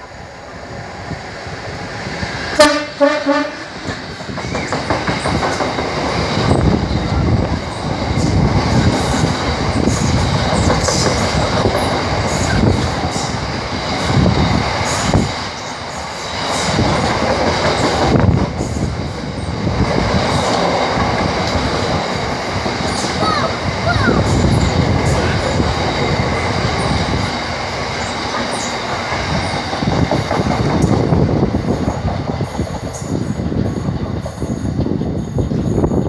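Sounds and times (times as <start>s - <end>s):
steel wheels rumbling on rail: 0.0s - 36.0s
train wheel knocks: 4.1s - 6.1s.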